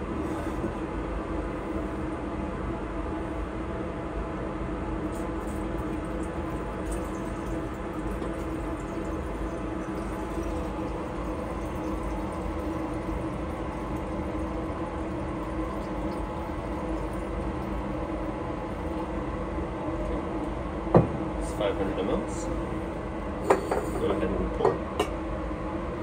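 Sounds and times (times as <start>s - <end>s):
mechanical hum: 0.0s - 26.0s
liquid pouring into glass cylinder: 5.1s - 20.5s.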